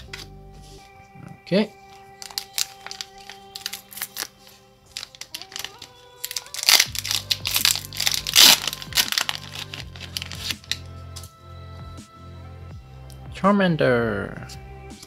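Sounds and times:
background music: 0.0 - 15.0
wrapper crinkling and tearing: 1.9 - 10.9.

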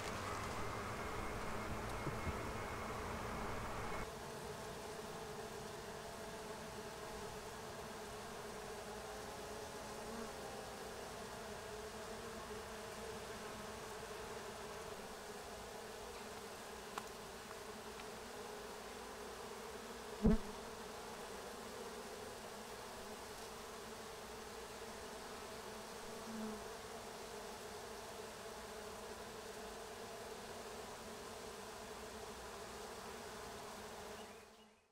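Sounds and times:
bees buzzing: 0.0 - 4.1, 4.8 - 26.6.

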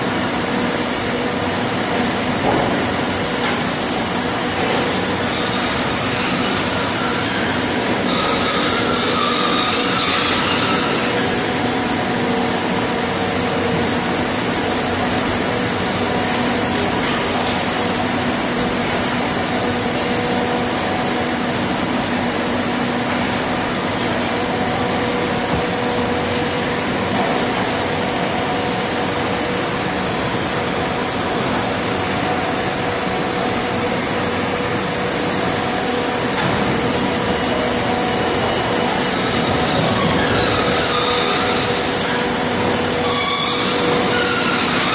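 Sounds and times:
industrial machinery drone: 0.0 - 44.9
ventilation rushing noise: 11.0 - 43.0.

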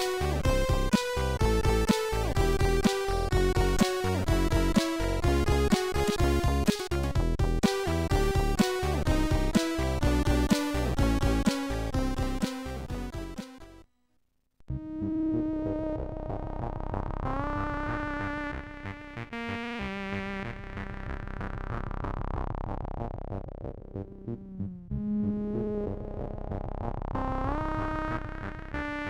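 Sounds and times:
low rhythmic pulse: 0.0 - 13.8.

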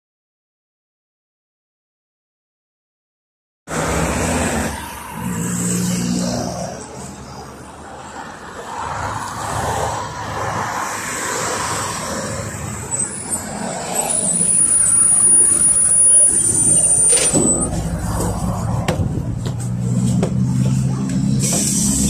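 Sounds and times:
cars driving past: 3.7 - 22.0
bus brake squeal: 12.9 - 18.0, 21.4 - 22.0.

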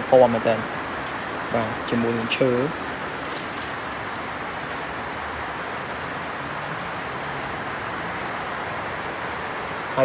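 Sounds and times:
steady background hiss: 0.0 - 10.0.

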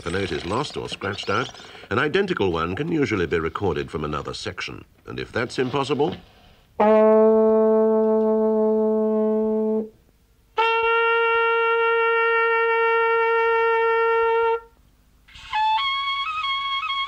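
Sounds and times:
low horn note: 6.8 - 10.0
trumpet notes: 6.8 - 17.0.

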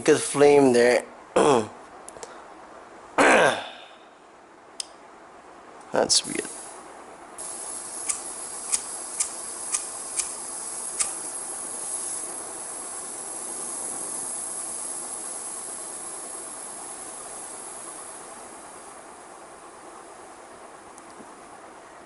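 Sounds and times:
soldering iron gas hissing: 6.3 - 20.4
sharp ignition clicks: 7.4 - 11.4.

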